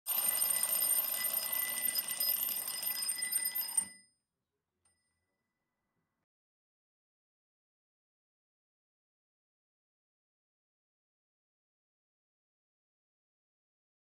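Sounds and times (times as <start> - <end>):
bell ringing: 0.1 - 4.0.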